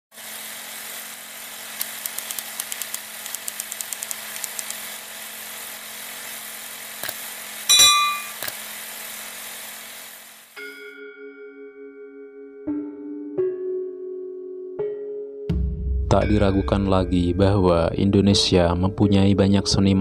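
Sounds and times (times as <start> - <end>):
projector hum and hiss: 0.4 - 10.5
quick clicks: 1.8 - 4.8
loud ringing hit: 7.7 - 8.4.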